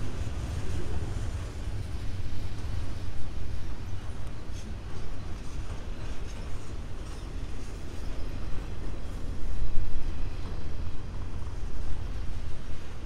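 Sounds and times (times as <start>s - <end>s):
freight train rumbling past: 0.0s - 13.0s.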